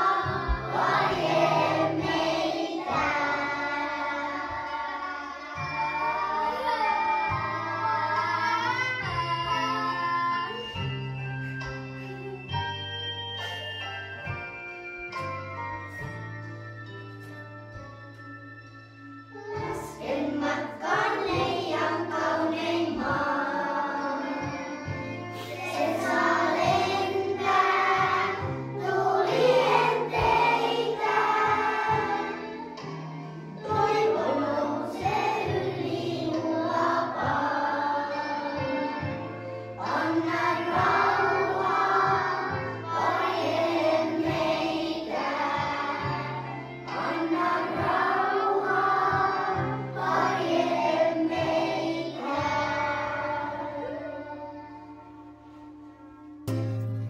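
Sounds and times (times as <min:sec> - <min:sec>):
choir singing: 0:00.0 - 0:09.1, 0:19.9 - 0:24.8, 0:25.4 - 0:32.6, 0:33.4 - 0:39.0, 0:39.8 - 0:54.8
instrumental backing: 0:00.0 - 0:57.0.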